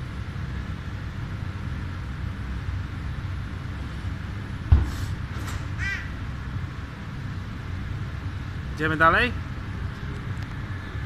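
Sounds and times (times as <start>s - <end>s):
loud thump: 4.7s - 5.6s.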